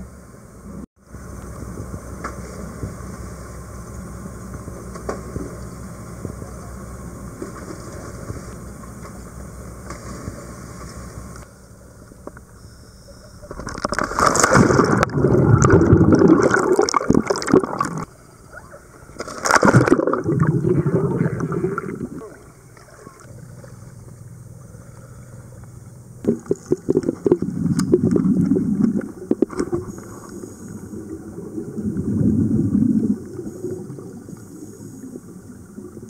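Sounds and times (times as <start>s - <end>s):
underwater churning water and bubbles: 13.2s - 36.0s
low rumble: 19.8s - 36.0s.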